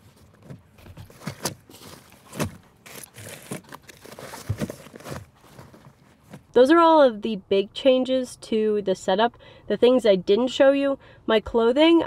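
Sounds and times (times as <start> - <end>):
fabric rustling: 0.0 - 6.5.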